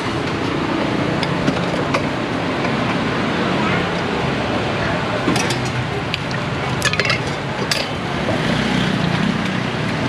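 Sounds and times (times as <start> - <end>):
metal utensils clinking on pots: 5.3 - 8.0.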